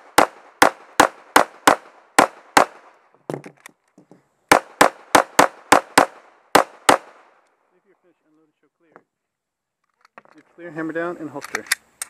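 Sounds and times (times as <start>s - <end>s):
soft knocks and clatter: 3.3s - 4.2s.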